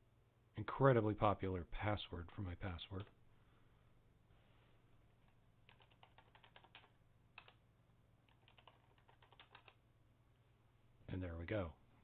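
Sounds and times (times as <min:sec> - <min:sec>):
faint keyboard typing: 0:02.8 - 0:03.2, 0:05.1 - 0:07.6, 0:08.2 - 0:09.8.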